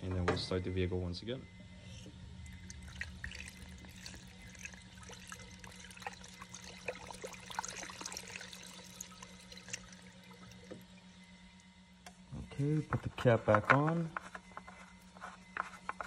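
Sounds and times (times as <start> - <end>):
steady low hum: 0.0 - 16.0
liquid pouring through a funnel: 2.0 - 11.8.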